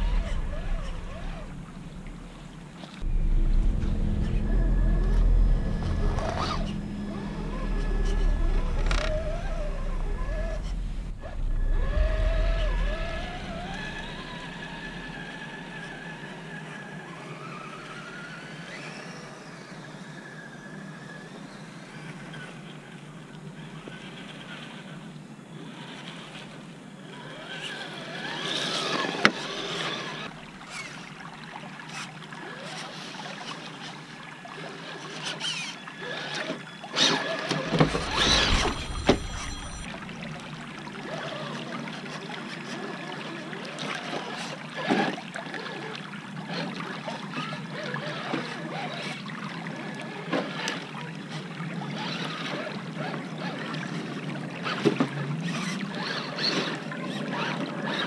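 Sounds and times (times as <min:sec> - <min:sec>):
loud deep rush close to microphone: 0:00.0 - 0:16.0, 0:37.7 - 0:40.2
running water: 0:00.0 - 0:58.0.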